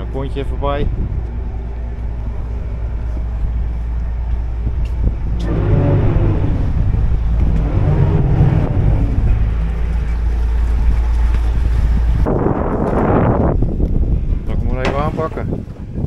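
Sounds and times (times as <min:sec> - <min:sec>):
boat engine idling and revving: 0:00.0 - 0:15.6.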